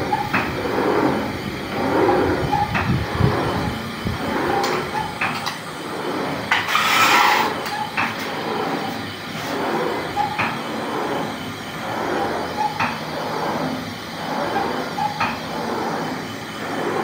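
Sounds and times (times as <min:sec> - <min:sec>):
carriage sliding along a rail: 0:00.0 - 0:17.0.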